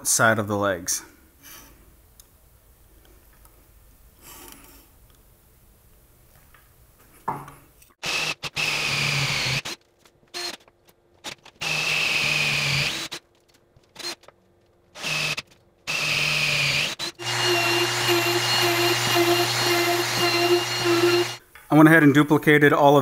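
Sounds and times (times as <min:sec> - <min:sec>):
power drill boring into wood: 0:08.0 - 0:09.8, 0:11.6 - 0:13.2, 0:15.0 - 0:21.4.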